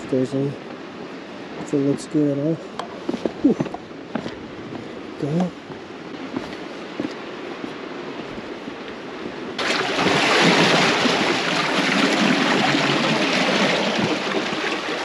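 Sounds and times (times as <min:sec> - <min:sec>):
surf breaking on rocks: 0:09.6 - 0:15.0.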